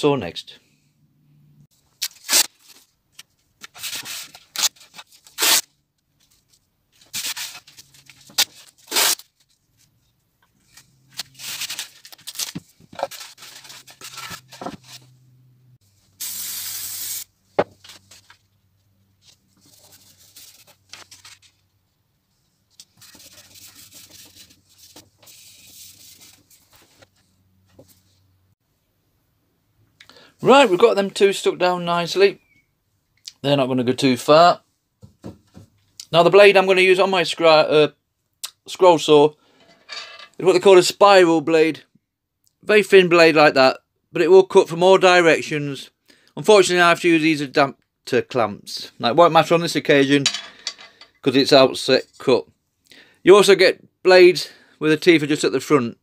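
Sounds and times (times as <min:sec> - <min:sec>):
tape pulled off roll and torn: 0:02.0 - 0:05.7, 0:07.1 - 0:09.4, 0:11.1 - 0:15.0
spray glue hiss: 0:16.2 - 0:17.3
paper rubbed on board: 0:23.0 - 0:26.3.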